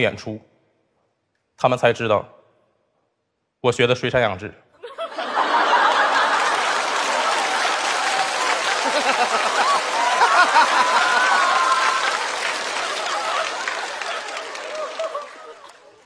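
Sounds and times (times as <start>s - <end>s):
audience laughing and applauding: 4.9s - 16.0s
person laughing loudly: 8.7s - 12.0s.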